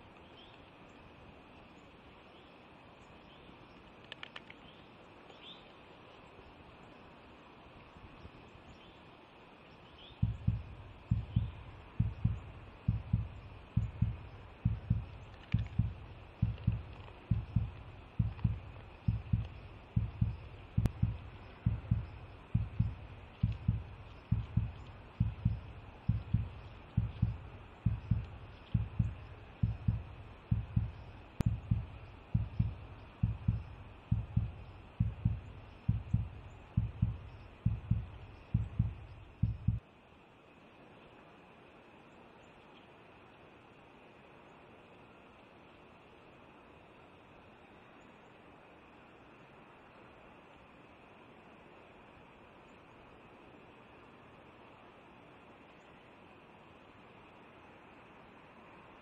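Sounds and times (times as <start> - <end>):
deep thumping pulse: 10.2 - 39.8.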